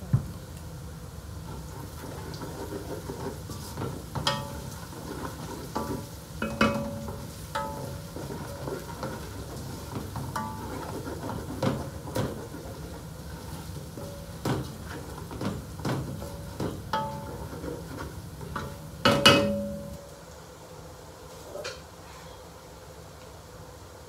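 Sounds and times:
spatula stirring in a metal pot: 1.4 - 20.0
spatula knocking against pot: 4.2 - 4.7, 5.8 - 9.2, 14.0 - 17.7, 18.6 - 20.0.

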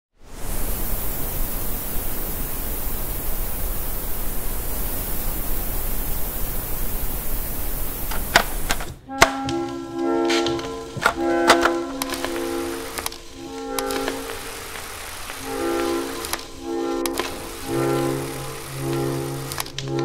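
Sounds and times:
static hiss: 0.2 - 20.0
sharp clicks: 11.0 - 20.0.

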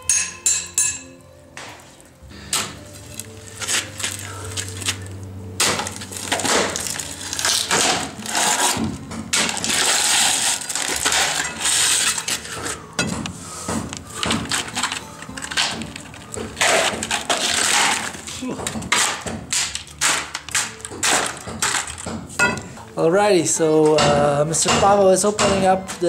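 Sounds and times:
broken concrete crunching: 2.6 - 23.1
steel bar chipping concrete: 5.6 - 13.2, 14.1 - 22.6.

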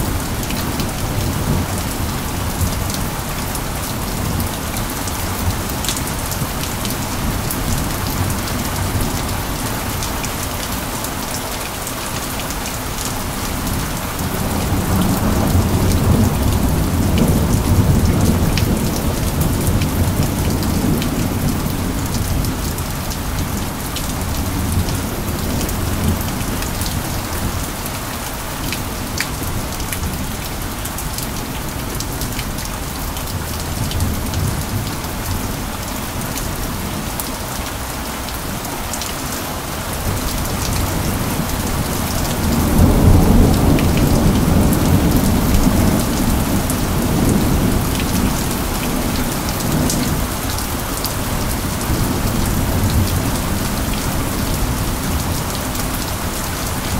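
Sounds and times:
steady rain: 0.0 - 56.9
low rumble of thunder: 13.4 - 27.8, 40.0 - 50.4.

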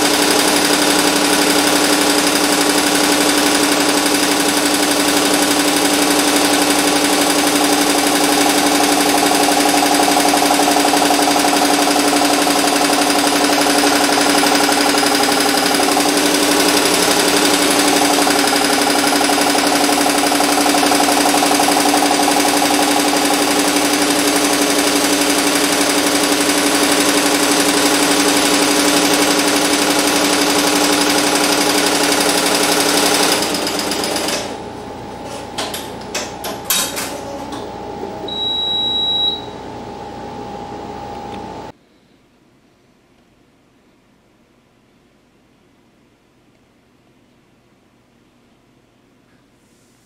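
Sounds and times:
machine clicks: 0.0 - 34.6
embroidery machine stitching: 0.0 - 34.7
short high beep: 38.3 - 39.6.

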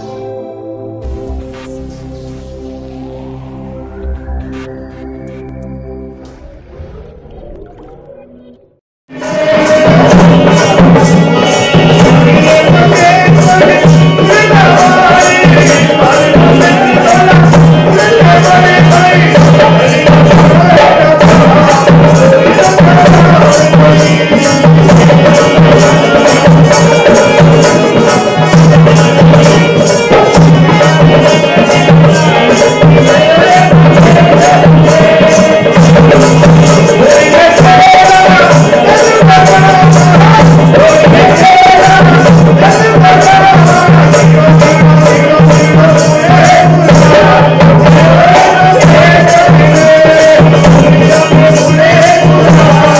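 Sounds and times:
sung melody: 0.0 - 21.5
dholak drum beat: 1.0 - 5.6, 9.1 - 52.9
harmonium: 9.1 - 52.9.

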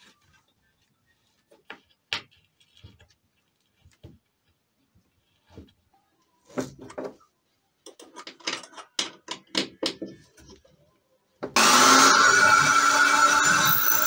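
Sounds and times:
electric drill boring into wood: 11.6 - 14.0.

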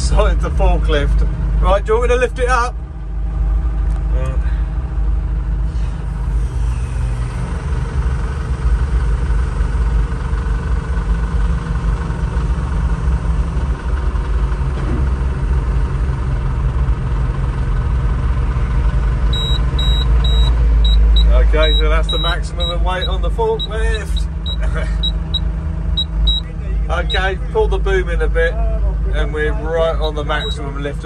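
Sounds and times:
engine running under load: 0.0 - 31.0
short warning beeps: 19.3 - 27.3, 30.4 - 30.7.

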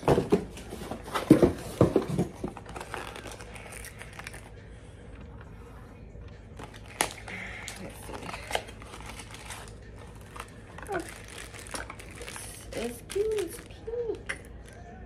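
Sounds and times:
packaging crinkling and tearing: 2.4 - 4.5, 6.6 - 14.8.

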